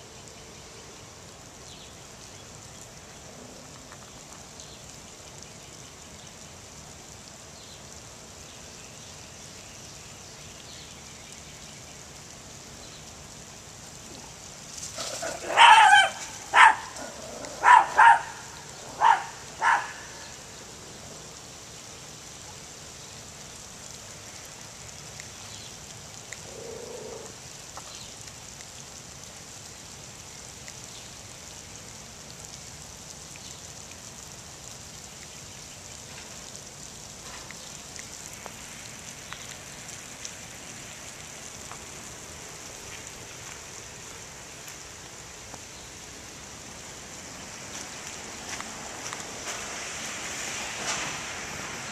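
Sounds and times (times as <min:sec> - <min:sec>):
light rain hiss: 0:00.0 - 0:51.9
small dog barking sharply: 0:15.2 - 0:17.0, 0:17.6 - 0:18.4, 0:19.0 - 0:20.0.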